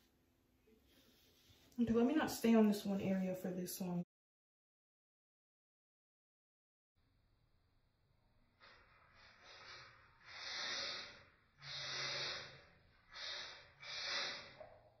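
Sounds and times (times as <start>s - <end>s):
person breathing heavily: 8.6s - 14.7s.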